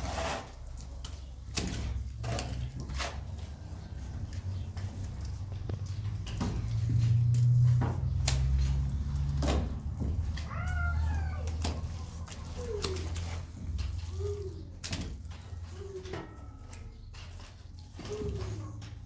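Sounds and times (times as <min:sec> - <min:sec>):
cat meowing: 0:10.5 - 0:11.5.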